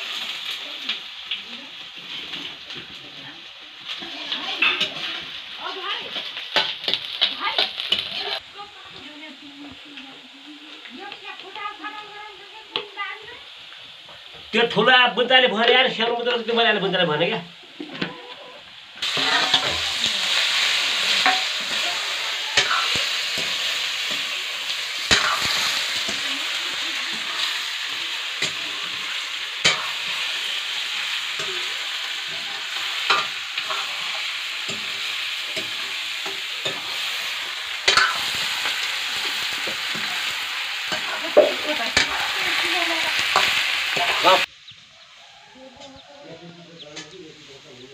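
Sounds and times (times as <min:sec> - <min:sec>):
chicken sizzling in a pan: 0:00.0 - 0:47.9
metal spoon scraping a pan: 0:03.9 - 0:05.4, 0:19.0 - 0:24.4, 0:25.0 - 0:44.5.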